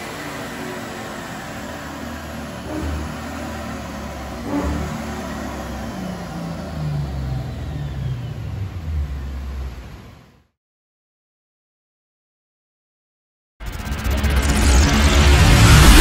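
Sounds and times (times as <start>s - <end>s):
car engine revving: 0.0s - 10.5s.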